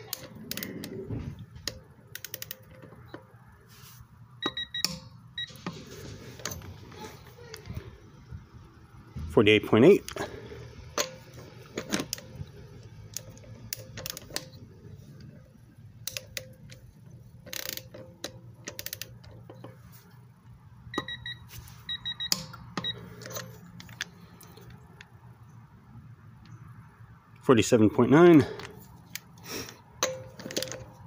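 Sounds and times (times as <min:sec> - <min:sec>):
torque wrench clicking: 0:02.1 - 0:02.8
short electronic beeps: 0:04.4 - 0:05.6, 0:20.9 - 0:23.1.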